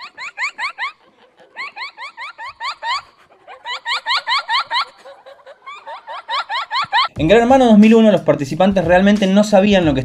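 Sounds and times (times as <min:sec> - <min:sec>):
young woman laughing hard: 0:00.0 - 0:07.2.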